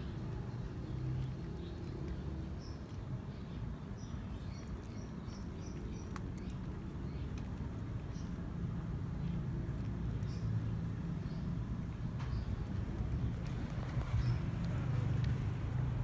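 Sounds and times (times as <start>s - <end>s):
low outdoor rumble: 0.0s - 16.0s
cat crunching dry kibble: 4.6s - 10.3s.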